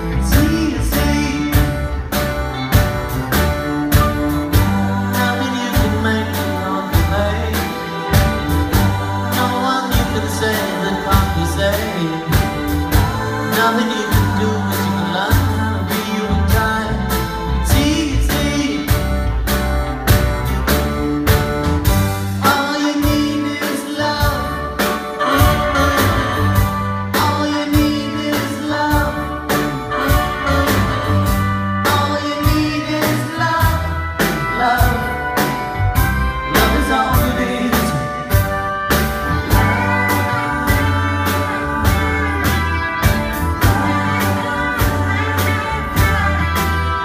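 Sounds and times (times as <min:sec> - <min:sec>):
person singing: 0:00.0 - 0:03.0, 0:03.9 - 0:19.3, 0:22.4 - 0:47.0
bass guitar: 0:00.0 - 0:47.0
drums: 0:00.0 - 0:47.0
electric guitars: 0:00.0 - 0:47.0
keyboard: 0:00.0 - 0:47.0.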